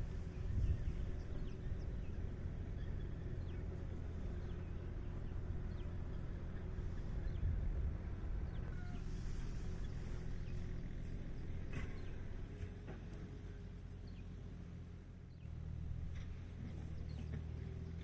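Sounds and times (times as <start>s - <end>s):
tractor engine idling: 0.0s - 18.0s
faint bird chirps: 8.4s - 12.8s.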